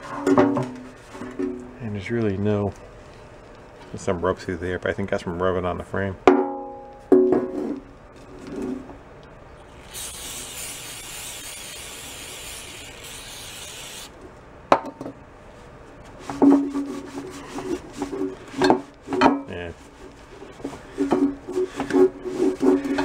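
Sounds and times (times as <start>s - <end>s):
aerosol spray can hissing: 9.7s - 14.2s.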